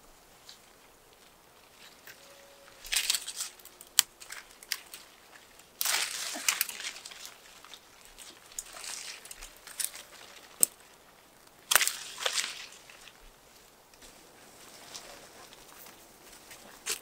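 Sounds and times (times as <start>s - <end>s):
leaves rustling: 0.0s - 17.0s
twigs snapping: 2.8s - 13.3s.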